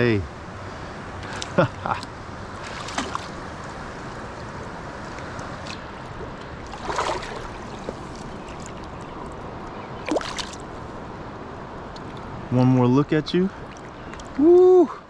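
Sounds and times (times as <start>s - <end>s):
river water rushing: 0.5s - 12.4s.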